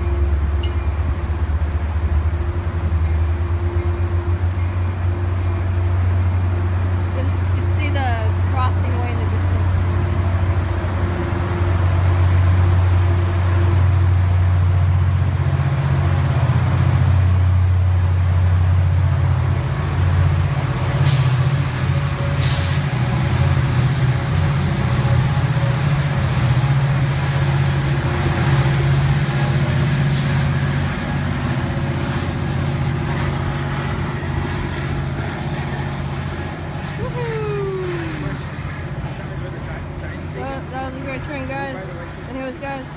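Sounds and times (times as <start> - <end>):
train engine drone: 0.0 - 42.9
air brake hisses: 21.0 - 21.6, 22.4 - 22.9.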